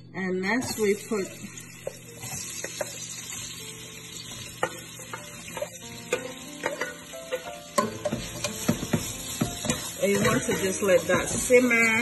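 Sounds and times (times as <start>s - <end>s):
vegetables sizzling in oil: 0.6s - 12.0s
spoon clicking against plate and pan: 4.6s - 10.4s.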